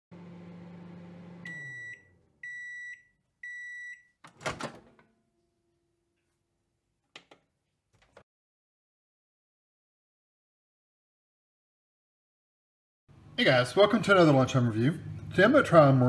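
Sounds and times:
microwave humming: 0.1s - 5.9s
microwave beeps: 1.2s - 4.2s.

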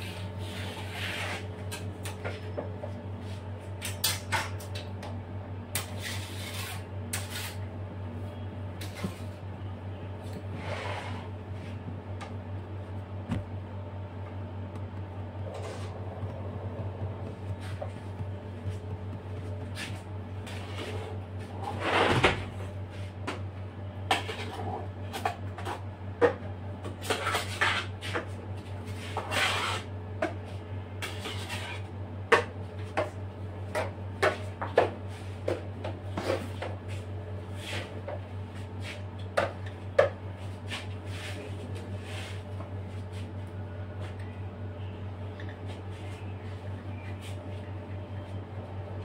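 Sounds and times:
steady low hum: 0.0s - 49.0s
palette knife scraping: 5.8s - 7.6s.

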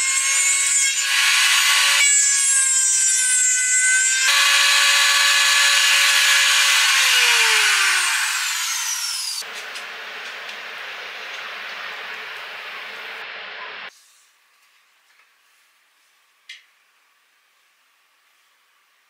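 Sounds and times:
trim router high-pitched whine: 4.2s - 13.9s
router motor spinning down: 4.3s - 9.4s.

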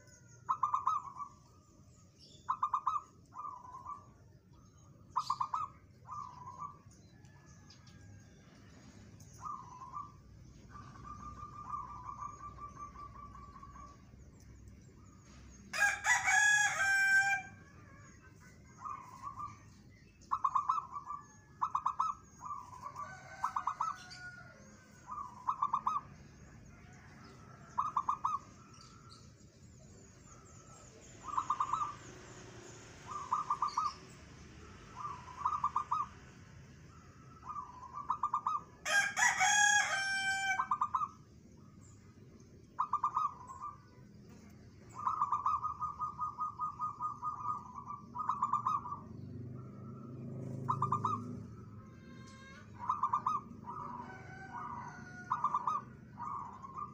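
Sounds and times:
dove trilled cooing: 0.0s - 8.1s, 8.8s - 14.3s, 15.1s - 29.2s, 30.1s - 32.3s, 33.0s - 34.2s, 34.8s - 36.3s, 37.0s - 41.2s, 42.7s - 56.9s
rooster crowing: 15.7s - 18.2s, 22.7s - 25.4s, 38.8s - 41.1s, 51.7s - 56.0s.

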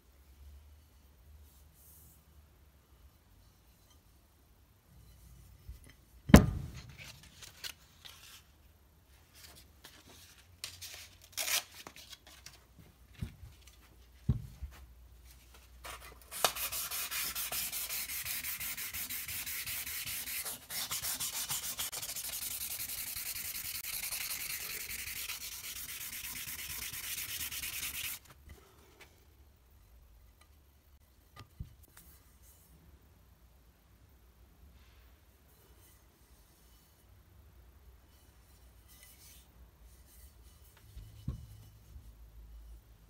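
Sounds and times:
sandpaper rubbing metal: 16.3s - 28.3s.

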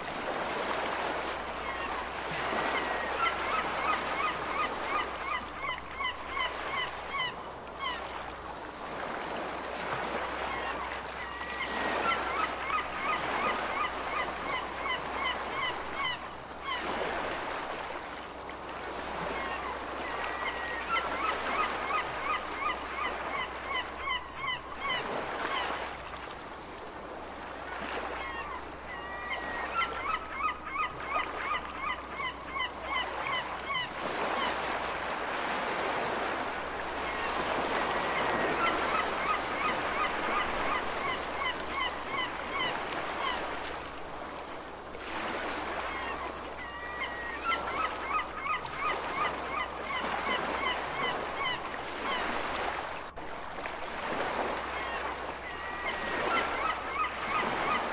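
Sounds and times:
ocean waves: 0.0s - 57.9s
seagulls calling: 1.6s - 8.2s, 10.4s - 17.3s, 19.1s - 25.9s, 27.8s - 34.8s, 37.0s - 43.5s, 45.2s - 52.8s, 54.2s - 57.9s.

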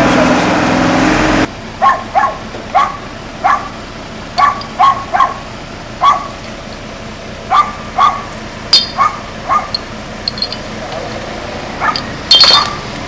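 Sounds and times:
dog barking: 1.8s - 3.7s, 4.4s - 5.4s, 6.0s - 6.3s, 7.5s - 8.3s, 8.9s - 9.8s, 11.8s - 12.1s.

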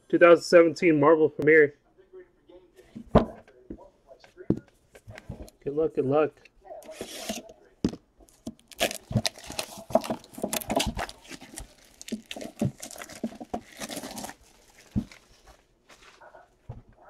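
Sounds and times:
plastic wrap crinkling and tearing: 8.3s - 15.6s.

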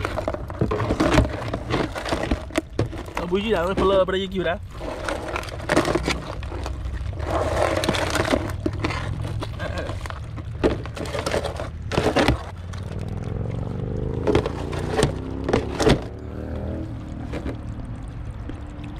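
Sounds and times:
low rumble: 4.7s - 18.9s.

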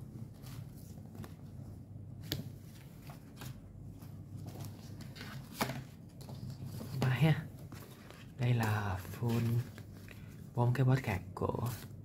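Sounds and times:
paper rustling: 2.2s - 10.5s.

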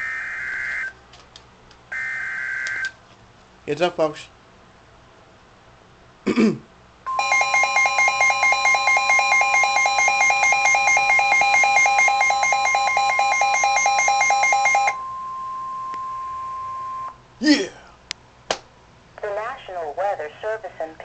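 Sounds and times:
fast pulsing electronic alarm: 0.0s - 0.9s, 1.9s - 2.9s, 7.1s - 17.2s
steady alarm tone: 0.0s - 0.9s, 1.9s - 2.8s, 7.1s - 17.2s.

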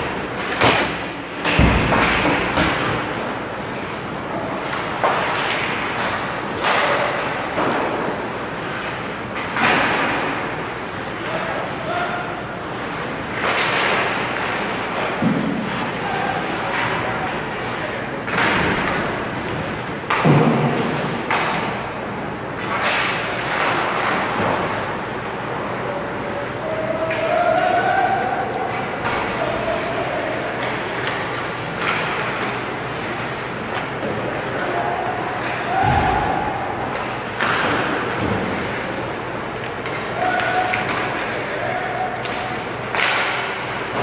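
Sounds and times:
echoing thuds in an arena: 0.0s - 3.1s, 20.0s - 21.8s, 35.7s - 36.8s
sharp knocks of sticks and puck: 0.0s - 3.3s, 4.6s - 10.6s, 13.3s - 15.9s, 18.2s - 24.9s, 30.5s - 32.6s, 35.3s - 38.8s, 39.6s - 41.5s, 42.1s - 44.0s
skates scraping ice: 1.8s - 12.0s, 12.6s - 21.9s.

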